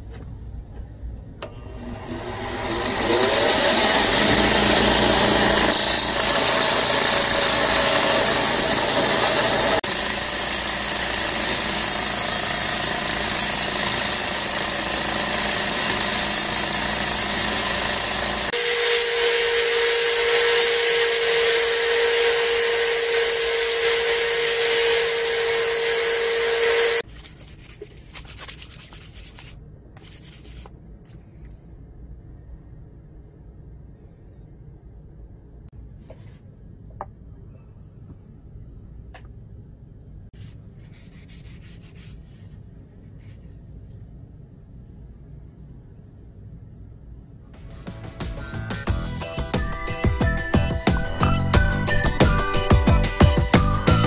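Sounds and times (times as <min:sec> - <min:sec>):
grinder grinding wood: 0:01.9 - 0:27.0
hand sanding with sandpaper: 0:26.1 - 0:30.7, 0:40.4 - 0:42.6.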